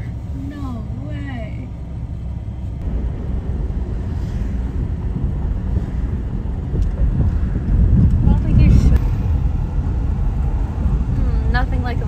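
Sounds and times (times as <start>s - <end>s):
steady low rumble: 0.0s - 12.0s
wind on microphone: 2.8s - 12.0s.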